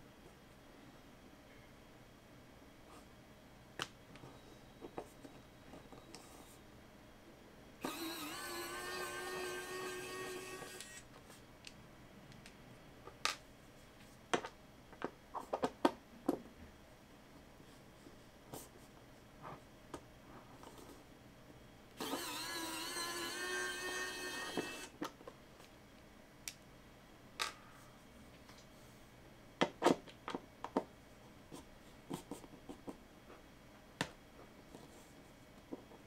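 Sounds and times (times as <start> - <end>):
electric screwdriver whirring: 7.8 - 11.0, 22.0 - 25.0.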